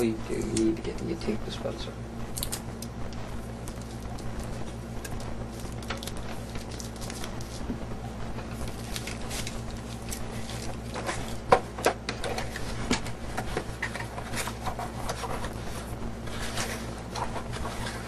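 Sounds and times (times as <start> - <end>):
low electrical hum: 0.0 - 18.0
rustling and crinkling of packaging: 2.4 - 18.0.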